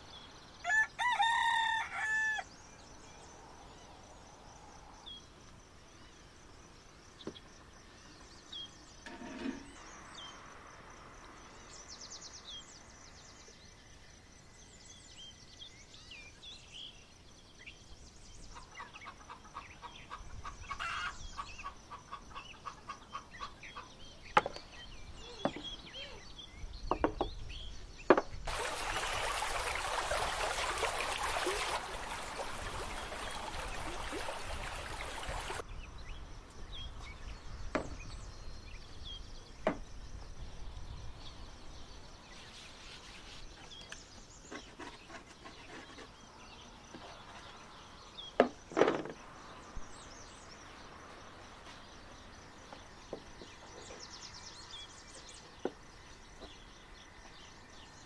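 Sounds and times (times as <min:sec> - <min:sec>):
wooden knocks on table: 0:24.4 - 0:24.6, 0:25.4 - 0:25.7, 0:26.9 - 0:27.4, 0:28.1 - 0:28.3
stream running over stones: 0:28.4 - 0:35.6.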